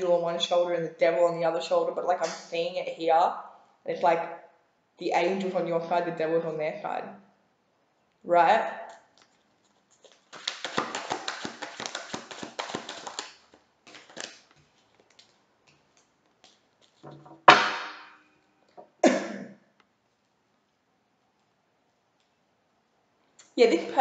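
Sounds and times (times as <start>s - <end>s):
cards being shuffled: 9.1s - 17.1s
sharp thumps: 17.0s - 18.2s.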